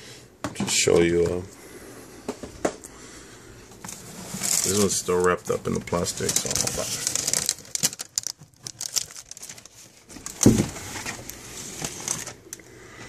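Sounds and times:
plastic wrap crinkling: 0:03.8 - 0:12.6.

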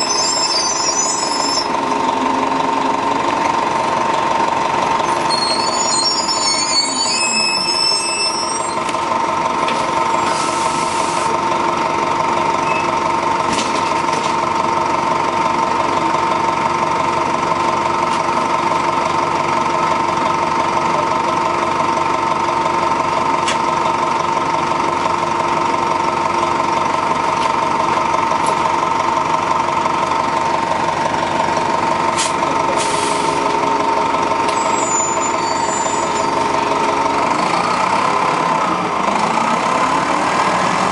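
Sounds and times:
bus diesel engine running: 0:00.0 - 0:40.9
low tone: 0:31.6 - 0:39.3.

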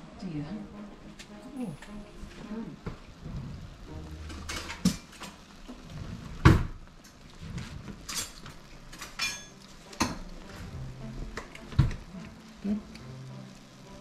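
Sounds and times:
water boiling in a pot: 0:02.0 - 0:14.0.

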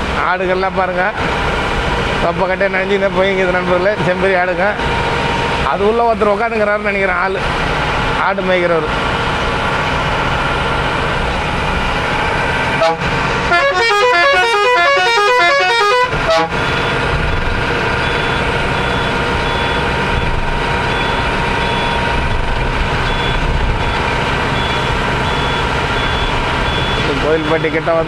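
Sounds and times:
bus engine and road noise: 0:00.0 - 0:28.0
horn playing musical tune: 0:12.8 - 0:16.6.

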